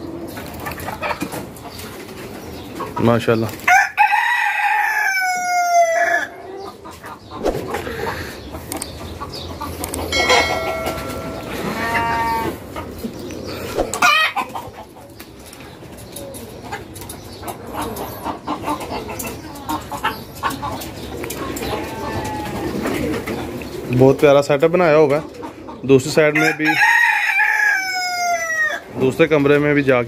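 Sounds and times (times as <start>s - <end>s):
chickens clucking: 0.0s - 30.0s
rooster crowing: 3.7s - 6.4s, 10.1s - 12.6s, 26.4s - 28.8s
short clicks: 8.7s - 9.0s, 9.8s - 10.1s
hen calls: 9.6s - 12.6s.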